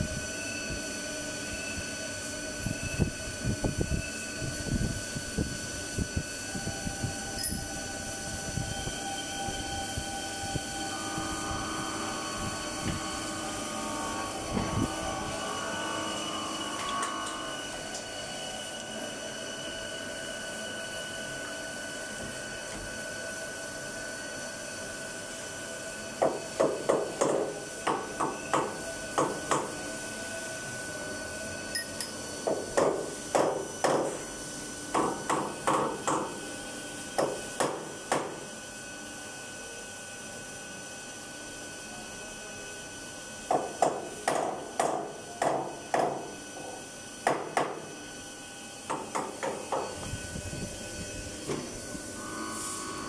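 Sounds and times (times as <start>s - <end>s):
machine hum: 0.0s - 22.6s, 47.8s - 53.0s.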